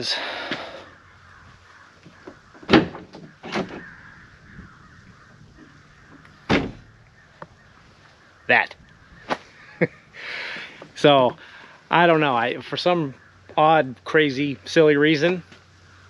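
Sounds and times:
tailgate clunks: 2.2 - 3.9, 6.1 - 6.9.

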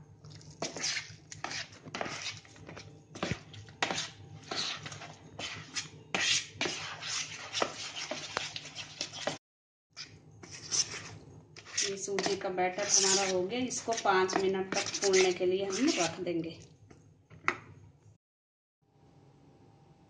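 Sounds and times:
spoon scraping batter in bowl: 0.3 - 9.4, 10.0 - 16.3.

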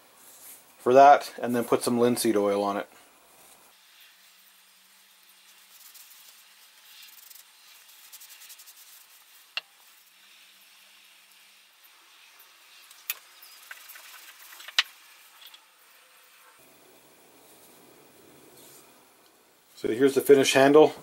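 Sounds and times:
cloth rubbing on wood: 3.3 - 12.8.

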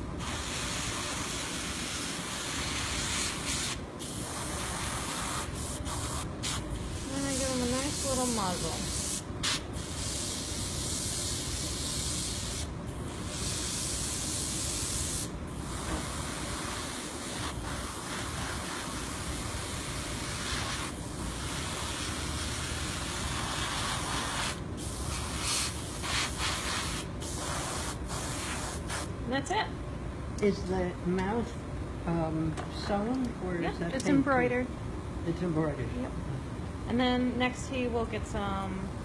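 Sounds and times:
airbrush spraying hiss: 0.0 - 29.1.

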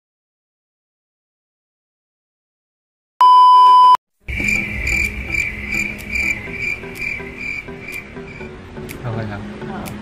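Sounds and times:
electronic beep: 3.2 - 6.8
crickets chirping: 4.3 - 8.5.

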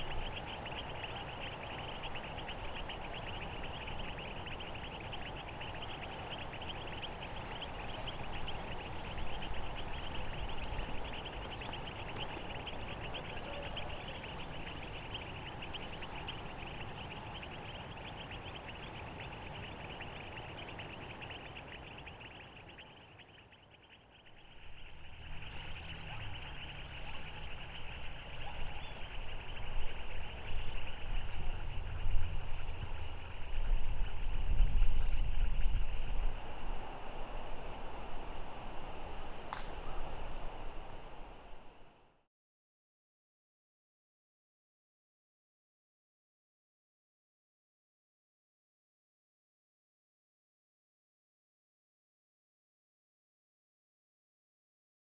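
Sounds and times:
insects and frogs trilling: 0.0 - 40.3.

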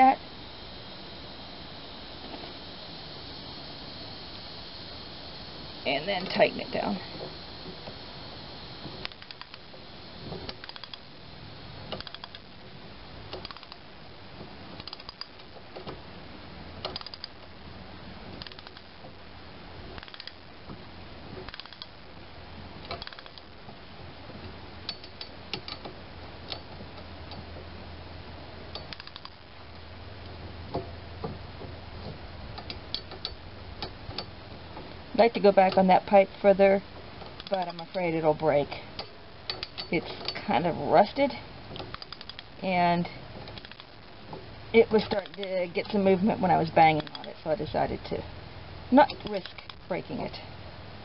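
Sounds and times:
ratchet wrench clicking: 9.0 - 9.6, 10.5 - 11.0, 11.9 - 12.4, 13.3 - 13.8, 14.8 - 15.4, 16.8 - 17.4, 18.4 - 18.9, 20.0 - 20.4, 21.5 - 22.0, 22.9 - 23.5, 28.7 - 29.4.

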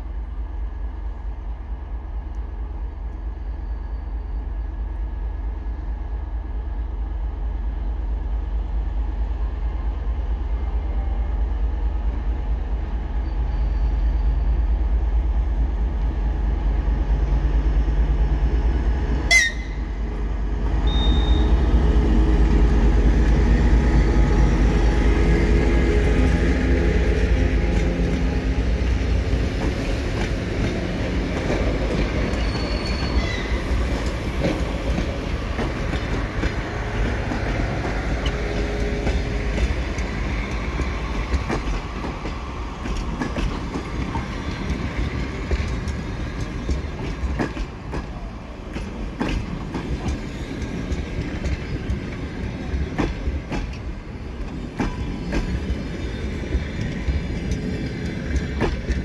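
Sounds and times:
train rumbling on rails: 0.0 - 59.0
wheels clacking over rail joints: 27.3 - 59.0
thin wheel squeal: 32.3 - 33.6.

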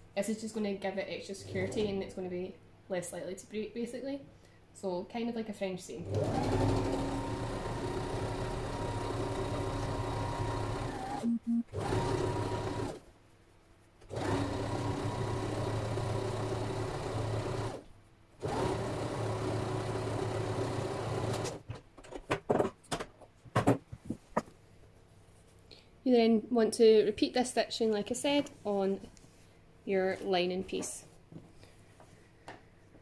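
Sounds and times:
sewing machine stitching: 1.4 - 1.9, 6.0 - 11.2, 11.8 - 13.0, 14.1 - 17.8.

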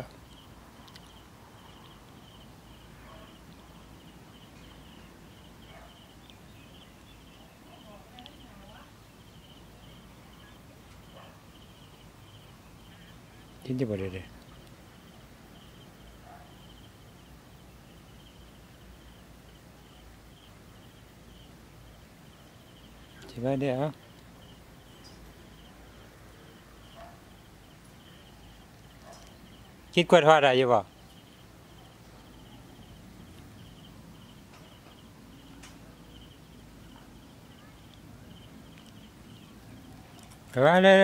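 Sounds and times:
faint ticks: 0.0 - 1.2, 8.1 - 8.4, 14.4 - 14.8, 28.9 - 29.4, 34.5 - 36.3, 37.8 - 39.2.

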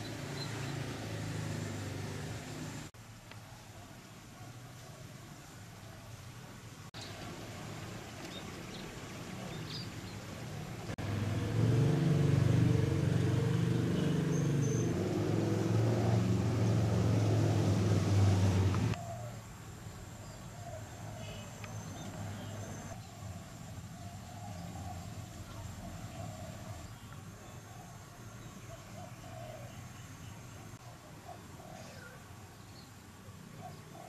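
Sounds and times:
motor engine humming: 10.4 - 19.0.

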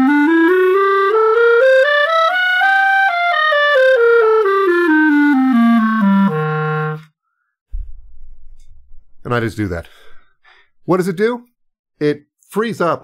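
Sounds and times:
flutter-tongued clarinet scale: 0.0 - 7.1.

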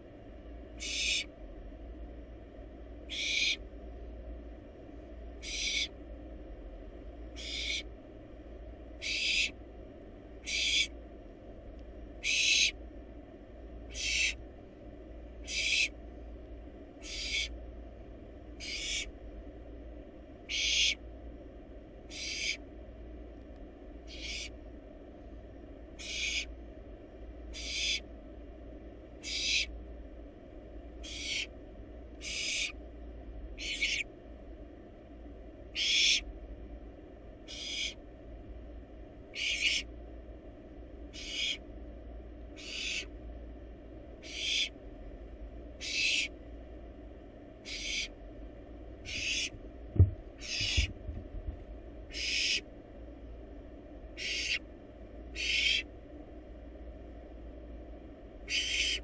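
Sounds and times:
faint low hum: 0.0 - 59.0
owl nestling hissing calls: 0.8 - 1.3, 3.1 - 3.6, 5.4 - 5.9, 7.3 - 7.9, 9.0 - 9.6, 10.4 - 11.0, 12.2 - 12.8, 13.9 - 14.4, 15.4 - 16.0, 17.0 - 17.6, 18.6 - 19.1, 20.5 - 21.0, 22.1 - 22.6, 24.1 - 24.5, 26.0 - 26.5, 27.5 - 28.1, 29.2 - 29.7, 31.0 - 31.5, 32.2 - 32.8, 33.6 - 34.1, 35.7 - 36.2, 37.5 - 38.0, 39.3 - 39.9, 41.1 - 41.6, 42.6 - 43.1, 44.2 - 44.8, 45.8 - 46.4, 47.6 - 48.1, 49.1 - 49.5, 50.4 - 50.9, 52.1 - 52.6, 54.2 - 54.6, 55.3 - 55.9, 58.5 - 59.0.

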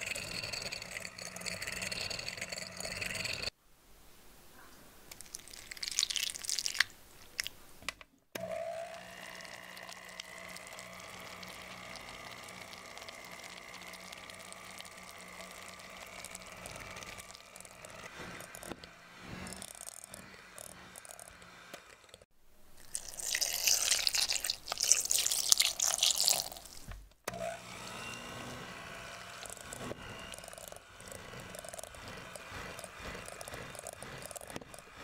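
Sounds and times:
electric hand mixer motor: 0.0 - 3.5, 8.4 - 22.3, 22.9 - 35.0
scratchy noises: 29.3 - 35.0.

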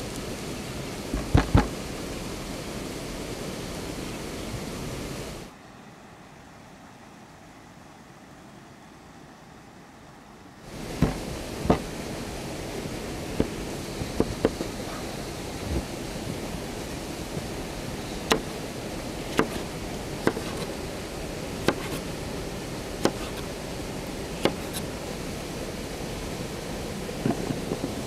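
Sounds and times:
rushing hiss: 0.0 - 5.6, 10.6 - 28.0
sharp knocks: 1.1 - 1.8, 11.0 - 11.9.

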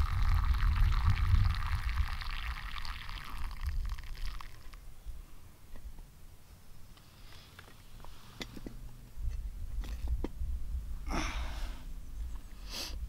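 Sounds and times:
breathy sniff: 12.6 - 13.0.

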